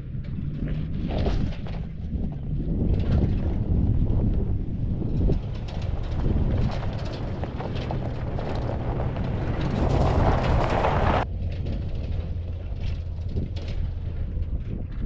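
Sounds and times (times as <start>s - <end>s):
truck engine running: 0.0s - 15.0s
stones crunching under tyres: 0.2s - 14.9s
rushing noise: 5.0s - 11.2s.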